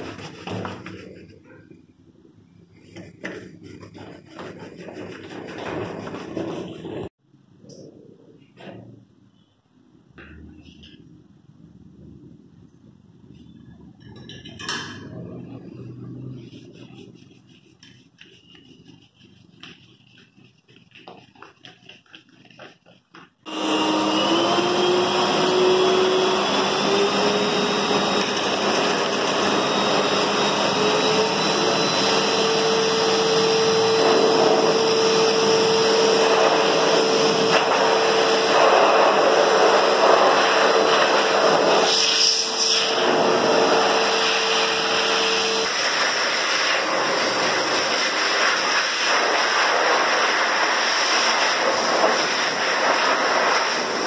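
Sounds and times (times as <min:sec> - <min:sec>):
dryer motor whine: 0:23.5 - 0:45.8
blower dryer rushing air: 0:23.5 - 0:54.0.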